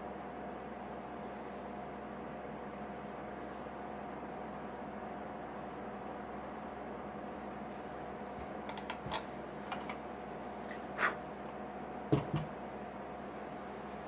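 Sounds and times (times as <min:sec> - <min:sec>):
steady background hum: 0:00.0 - 0:14.0
shoe knocking down on mat: 0:12.1 - 0:12.5.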